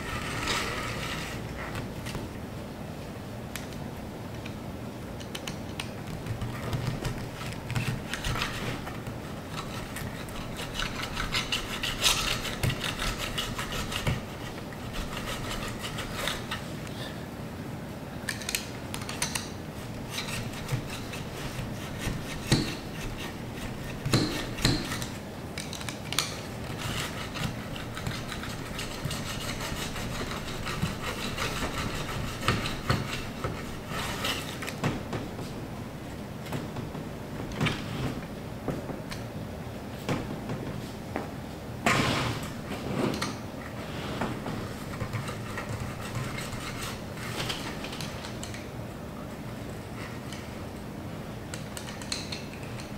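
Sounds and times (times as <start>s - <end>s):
roller tool rubbing and rasping: 0.0s - 1.7s, 9.5s - 16.7s, 26.6s - 34.7s, 43.8s - 47.6s.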